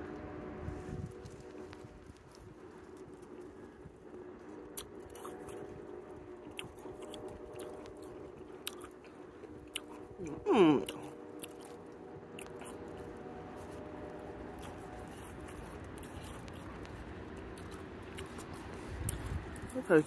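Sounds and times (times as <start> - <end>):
chewing crunchy snow: 0.1 - 20.0
person humming mm: 10.2 - 11.1.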